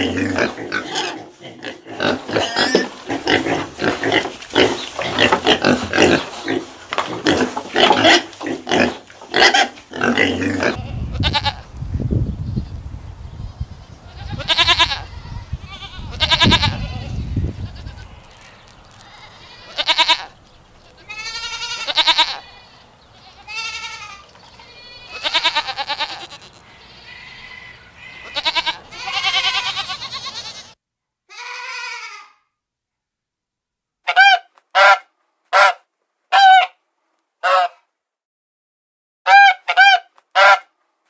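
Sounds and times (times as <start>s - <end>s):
goats bleating: 0.0s - 11.6s, 14.0s - 32.4s.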